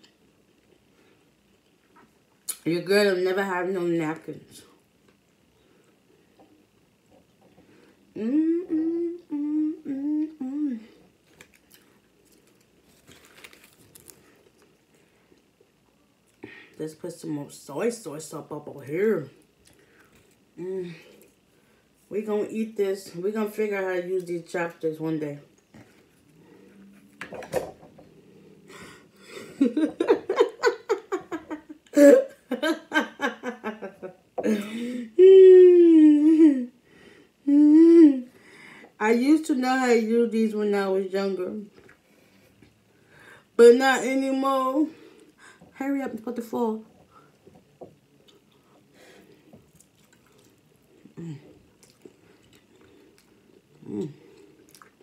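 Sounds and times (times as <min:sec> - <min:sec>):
woman humming: 0:08.1 - 0:11.1, 0:20.6 - 0:21.2, 0:34.4 - 0:36.8, 0:37.4 - 0:38.3, 0:51.1 - 0:51.6, 0:53.8 - 0:54.4
woman laughing: 0:29.3 - 0:36.7.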